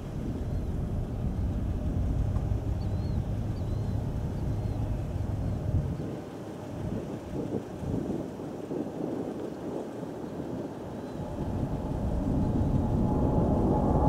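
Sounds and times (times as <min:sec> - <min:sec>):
jet engines rumbling: 0:00.0 - 0:14.0.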